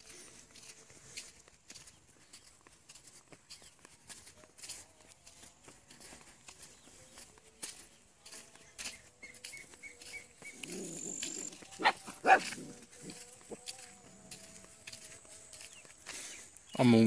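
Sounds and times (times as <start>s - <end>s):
dog barking: 11.7s - 12.8s.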